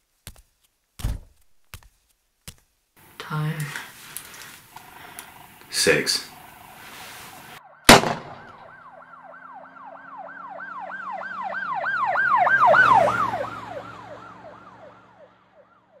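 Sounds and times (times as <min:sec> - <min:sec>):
emergency vehicle siren yelping: 0:06.3 - 0:16.0.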